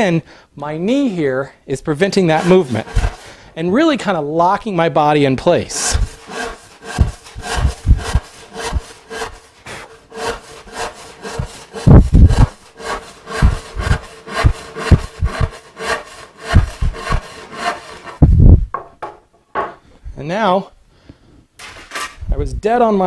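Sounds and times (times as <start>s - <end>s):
hand saw cutting wood: 2.1s - 3.3s, 5.7s - 18.3s.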